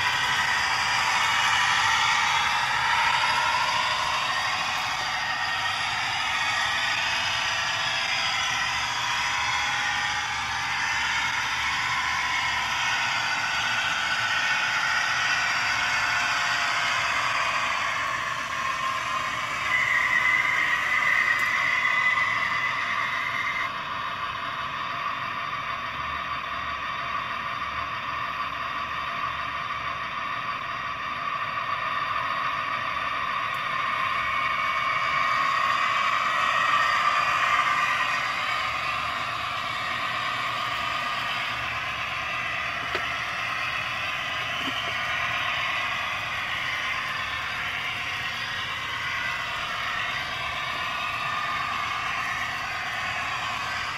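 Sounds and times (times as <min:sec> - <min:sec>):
model train diesel engine sound: 0:00.0 - 0:53.9
steady high tone: 0:33.5 - 0:53.9.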